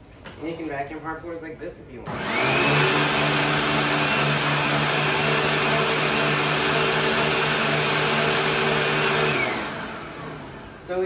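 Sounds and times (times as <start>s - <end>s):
vacuum motor winding down: 2.1s - 10.9s
vacuum cleaner running: 2.1s - 11.0s.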